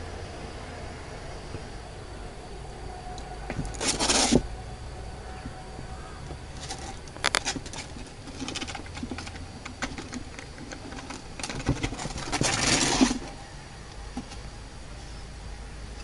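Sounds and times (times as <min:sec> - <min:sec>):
loud scraping rush: 0:03.3 - 0:05.8, 0:06.5 - 0:13.5
claws scratching on plastic: 0:03.5 - 0:04.5, 0:06.5 - 0:13.4.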